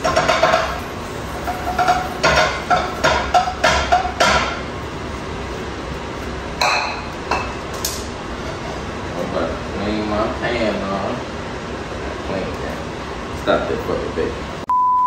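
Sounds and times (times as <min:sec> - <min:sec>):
utensils tapping cookware: 0:00.0 - 0:04.6.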